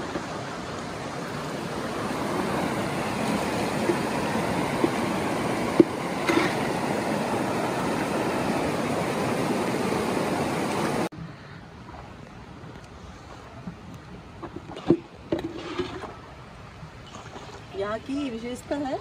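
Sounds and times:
water rushing over rocks: 0.0 - 11.1.

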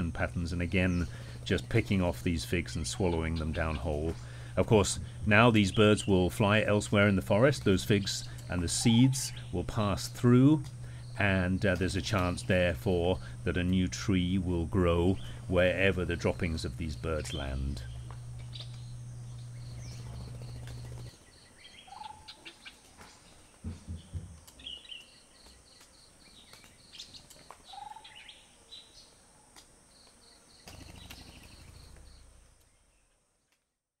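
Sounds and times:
bird calls: 0.0 - 14.0, 14.9 - 29.2, 30.0 - 33.1
high insect whine: 0.0 - 21.8, 29.0 - 33.0.

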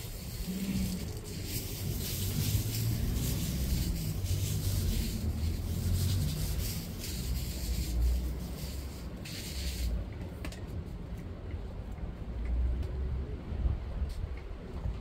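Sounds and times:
rustling rubbing noise: 0.0 - 10.0.

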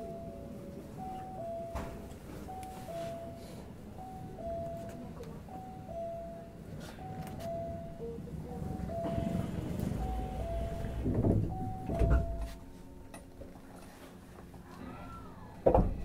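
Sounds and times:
train doors thumping shut: 1.6 - 2.5, 7.1 - 13.3, 15.6 - 16.0.

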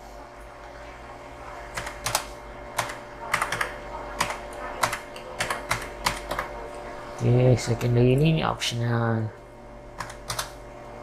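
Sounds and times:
typing on computer keyboard: 1.8 - 6.5, 10.0 - 10.6.

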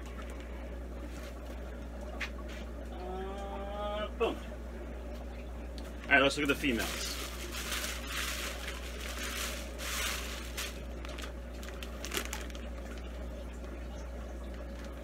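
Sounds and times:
plastic bags crinkling: 6.4 - 13.2.

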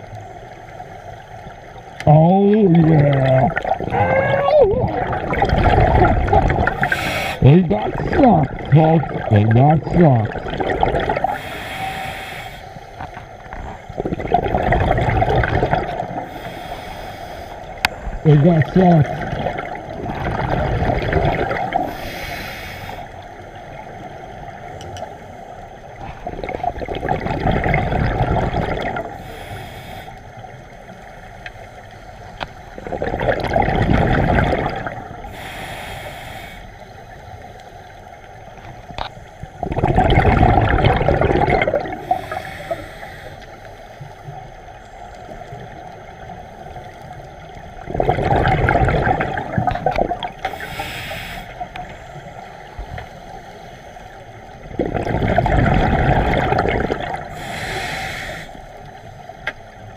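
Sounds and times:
bubbling underwater exhale: 2.7 - 12.4, 13.9 - 17.0, 18.6 - 23.1, 26.0 - 29.6, 32.7 - 36.1, 39.6 - 43.5, 46.8 - 51.9, 54.6 - 58.6
hissing regulator inhale: 6.8 - 7.4, 11.2 - 13.3, 16.2 - 17.8, 21.8 - 23.3, 29.2 - 30.4, 35.2 - 38.1, 42.0 - 44.3, 50.4 - 51.8, 57.3 - 59.3.

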